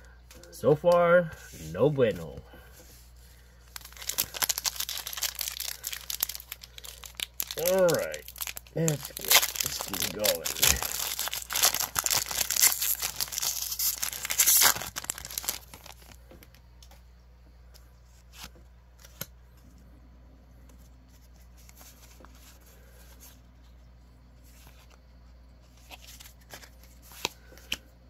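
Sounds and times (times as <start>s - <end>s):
foil wrapper tearing and crinkling: 3.7s - 16.2s.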